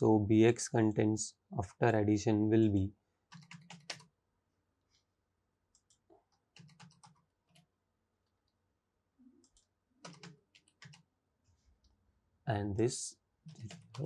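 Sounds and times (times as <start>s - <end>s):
faint clicking: 5.7s - 6.4s.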